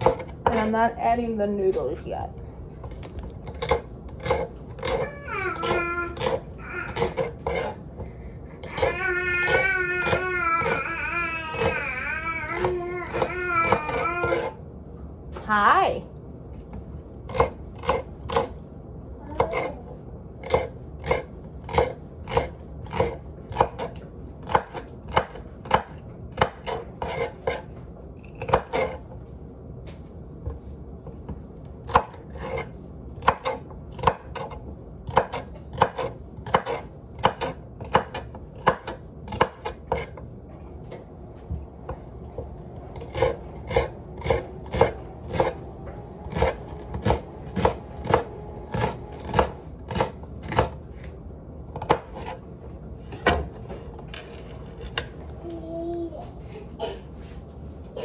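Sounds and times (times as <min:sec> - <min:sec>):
knife chopping on wooden board: 0:05.6 - 0:07.8, 0:20.4 - 0:27.7, 0:28.4 - 0:29.0, 0:30.4 - 0:40.2, 0:43.0 - 0:51.1, 0:51.8 - 0:52.4.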